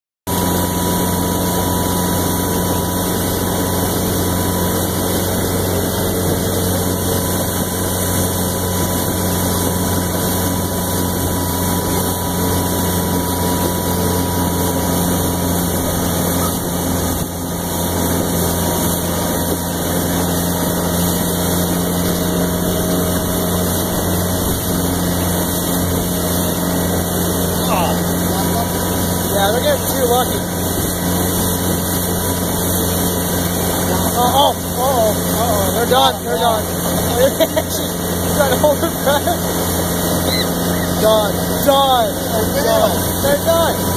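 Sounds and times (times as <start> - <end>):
motorboat engine humming: 0.3 - 43.9
rush of wind and water: 0.3 - 43.9.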